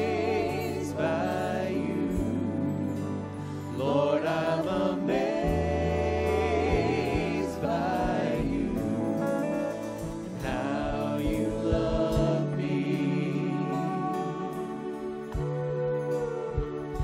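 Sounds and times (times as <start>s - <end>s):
low bass notes: 0.0s - 17.0s
voices singing together: 0.0s - 17.0s
live band playing: 7.5s - 17.0s.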